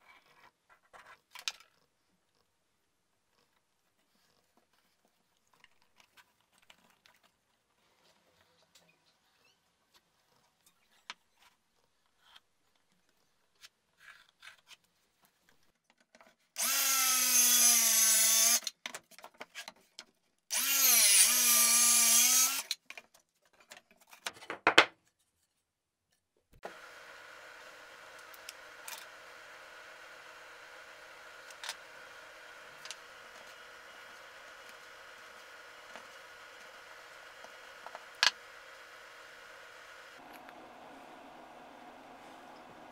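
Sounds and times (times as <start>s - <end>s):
circular saw cutting plywood: 16.6s - 18.7s, 20.5s - 22.8s, 26.6s - 42.9s.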